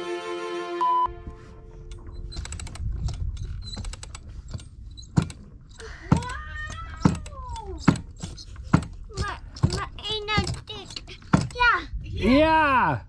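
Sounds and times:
winch ratcheting: 0:01.8 - 0:11.8
child's voice gliding: 0:06.1 - 0:07.9, 0:09.1 - 0:12.1.

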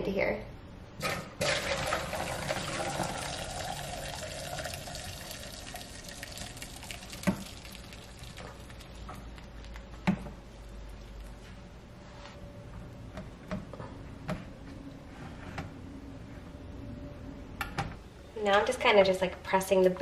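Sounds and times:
liquid pouring through a strainer: 0:01.4 - 0:09.4.

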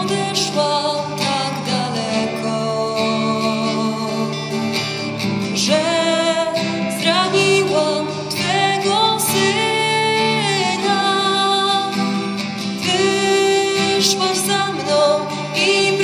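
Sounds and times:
acoustic guitar: 0:00.0 - 0:16.0
person singing devotional song: 0:05.6 - 0:16.0.

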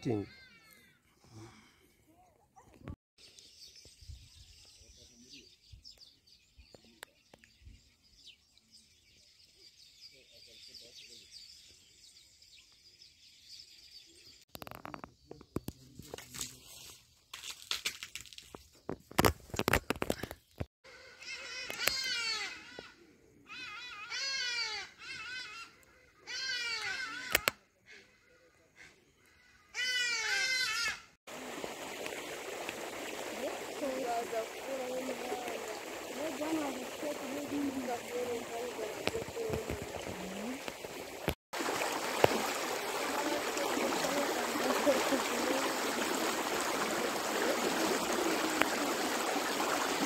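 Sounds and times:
floodwater rushing: 0:31.3 - 0:50.0.

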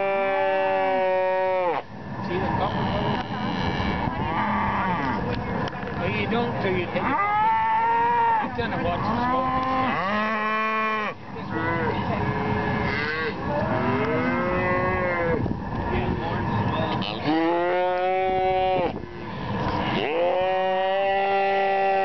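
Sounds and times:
calves bawling: 0:02.5 - 0:05.8, 0:06.8 - 0:15.4, 0:16.4 - 0:22.0.

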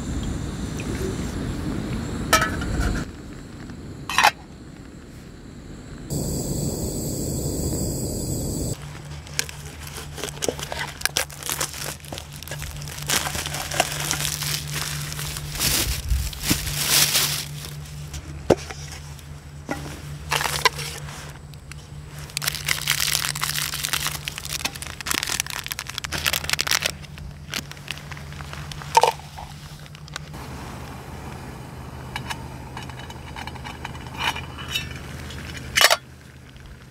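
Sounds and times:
paper packaging crinkling and tearing: 0:08.7 - 0:18.1, 0:22.1 - 0:28.9
foil sachets ripping open: 0:09.5 - 0:17.8, 0:22.2 - 0:28.6.

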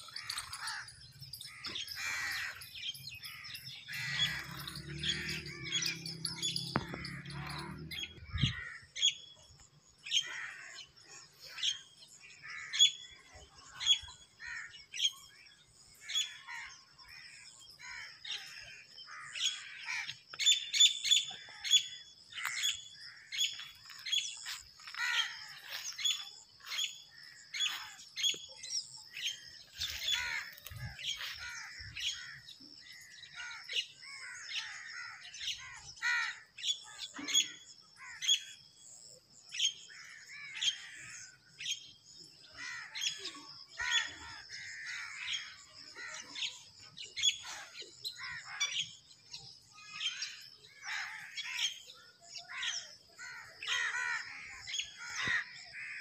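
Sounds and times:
birds chirping and calling: 0:00.0 - 0:56.0.

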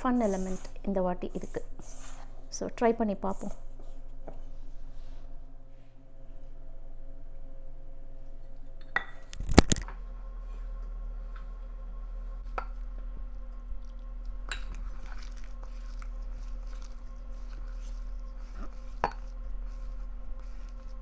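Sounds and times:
hands kneading dough: 0:00.0 - 0:04.2, 0:12.4 - 0:21.0
steady low hum: 0:00.0 - 0:21.0.

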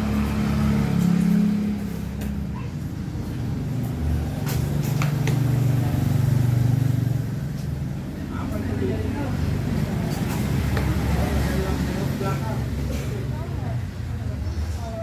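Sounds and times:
motor vehicle engine humming: 0:00.0 - 0:15.0.

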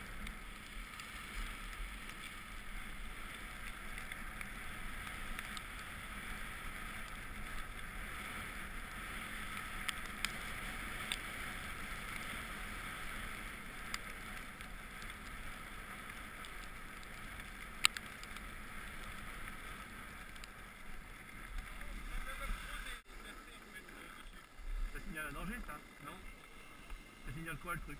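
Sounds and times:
snow hissing under skis: 0:00.0 - 0:14.3, 0:18.4 - 0:24.2.

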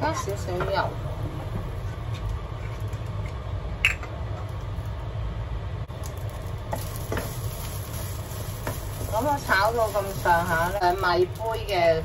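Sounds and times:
steady low hum: 0:00.0 - 0:12.0
spatula stirring rice in a wok: 0:06.6 - 0:10.7.

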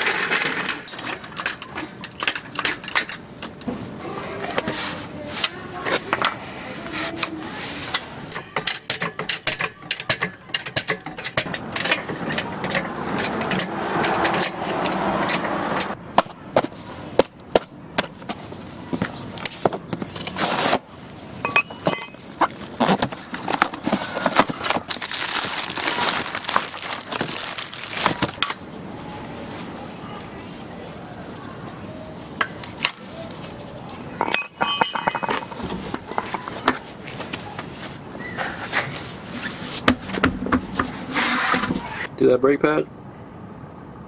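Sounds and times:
wrench turning lug nuts: 0:08.4 - 0:16.0
packing tape being slit: 0:22.8 - 0:28.4.

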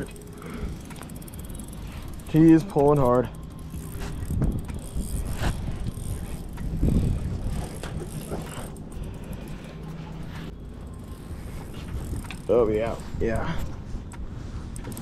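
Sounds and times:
fishing reel drag clicking: 0:00.0 - 0:09.9, 0:10.9 - 0:12.6.

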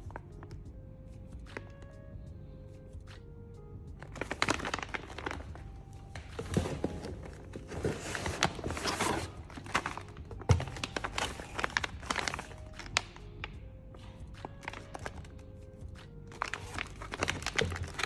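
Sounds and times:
plastic pouches crinkling: 0:04.0 - 0:13.6, 0:14.4 - 0:15.5, 0:16.3 - 0:18.0.

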